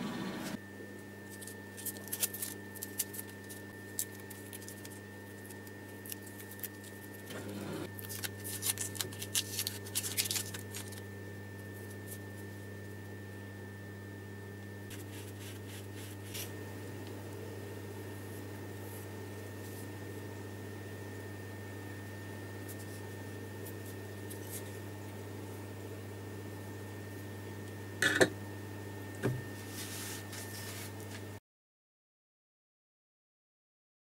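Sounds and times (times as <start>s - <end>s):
low steady hum: 0.0s - 31.4s
masking tape peeling and crinkling: 8.0s - 11.0s.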